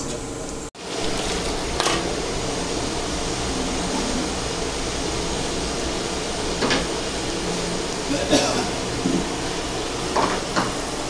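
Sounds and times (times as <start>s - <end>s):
gas burner rushing: 0.0s - 11.0s.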